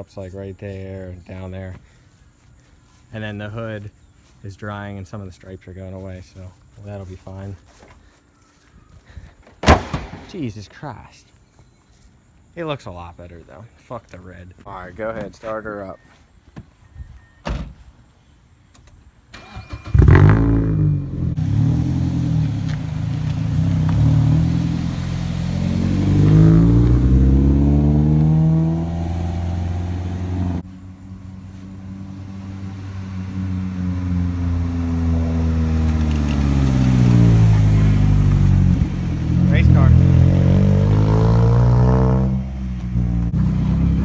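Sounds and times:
car engine starting and revving: 19.3s - 44.0s.

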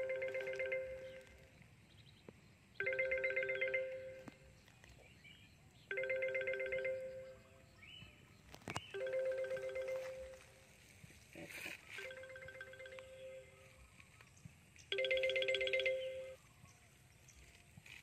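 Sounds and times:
telephone ringing: 0.0s - 1.5s, 2.8s - 4.4s, 5.9s - 7.4s, 8.9s - 10.6s, 12.0s - 13.6s, 14.9s - 16.4s.

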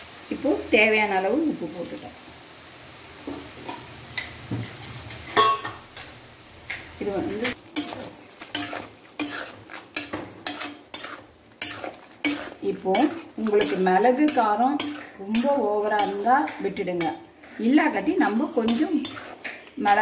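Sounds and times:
light sizzle: 0.0s - 20.0s
steel spoon scraping metal pan: 7.8s - 20.0s.

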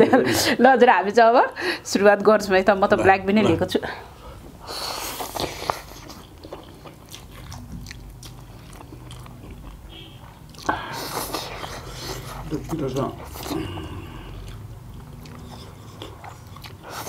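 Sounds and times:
wet chewing: 4.8s - 17.0s
people slurping noodles: 10.6s - 14.7s.

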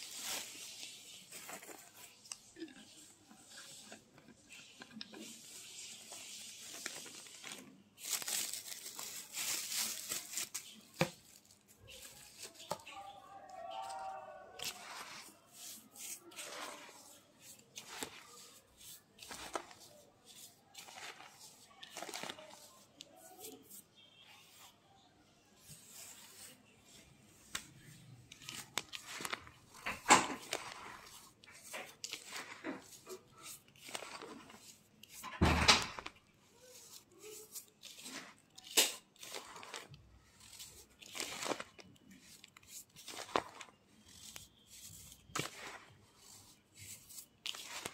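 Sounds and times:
powder crunching in hands: 35.9s - 47.9s.

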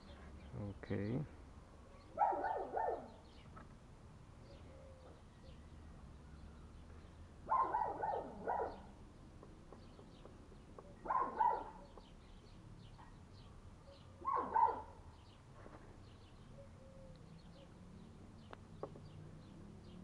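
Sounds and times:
birds chirping: 0.0s - 20.0s
dog barking: 2.1s - 3.2s, 7.5s - 8.9s, 11.0s - 11.9s, 14.2s - 15.0s.

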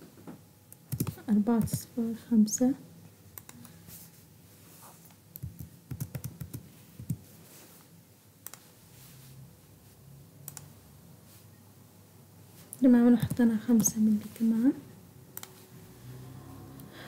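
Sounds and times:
computer keyboard typing: 0.8s - 1.9s, 5.4s - 7.2s, 13.1s - 14.0s.

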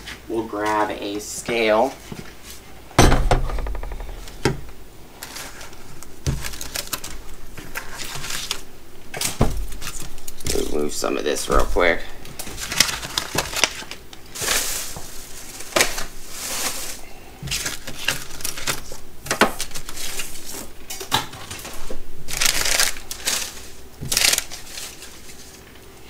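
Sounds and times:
packaging rustling and crinkling: 5.2s - 10.7s, 12.3s - 20.7s, 21.4s - 25.9s.

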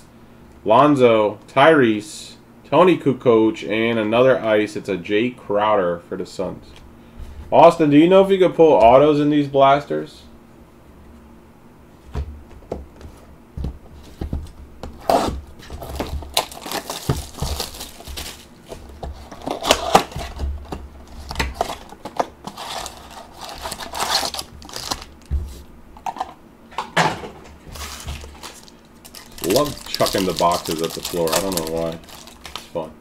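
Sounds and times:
cardboard tearing: 15.0s - 20.5s, 21.2s - 25.2s, 27.7s - 32.7s
wrapper crinkling: 15.7s - 20.4s, 21.1s - 25.3s, 27.7s - 32.8s.

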